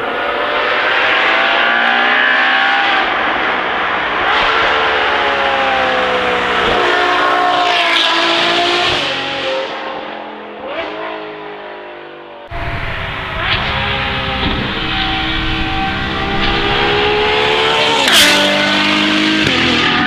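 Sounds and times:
sports car driving past: 0:12.5 - 0:20.0.

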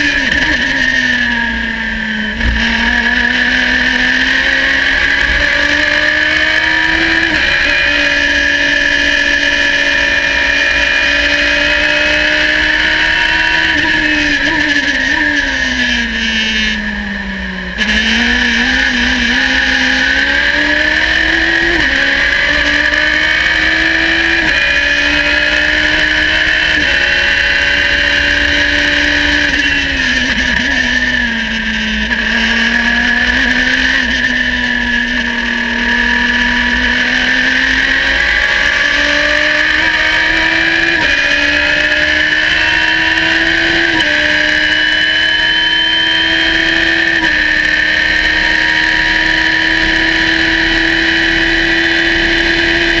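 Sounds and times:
race car engine running hard: 0:00.0 - 0:53.0.

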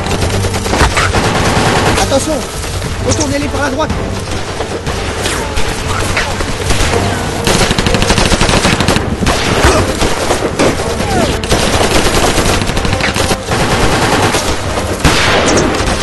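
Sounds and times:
rifle shots: 0:06.5 - 0:16.0
machine-gun bursts: 0:07.5 - 0:09.1, 0:11.4 - 0:16.0.

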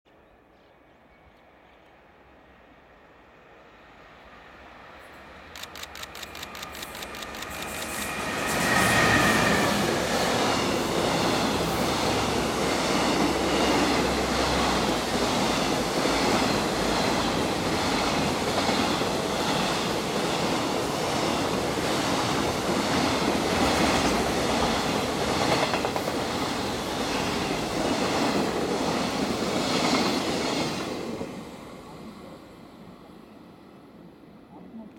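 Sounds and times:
train wheels clickety-clack: 0:05.6 - 0:31.2
locomotive passing loudly: 0:06.2 - 0:30.7.

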